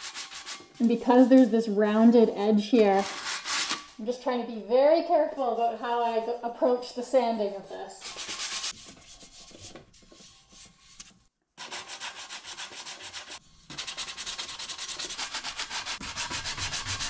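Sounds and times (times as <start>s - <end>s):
sandpaper scratching: 0.0s - 0.7s, 3.0s - 3.9s, 7.5s - 17.0s.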